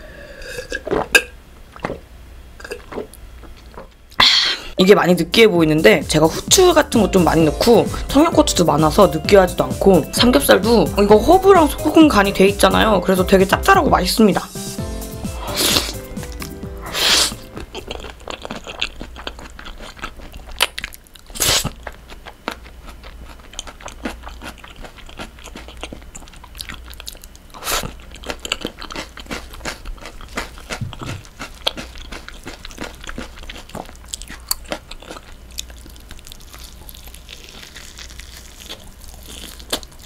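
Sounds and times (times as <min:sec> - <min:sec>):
chewing mouth sounds: 0:15.4 - 0:40.0
biting into crispy pork: 0:15.5 - 0:40.0.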